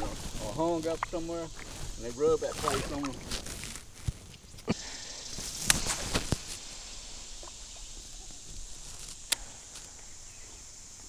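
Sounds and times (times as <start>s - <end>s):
brief hiss: 4.6s - 10.4s.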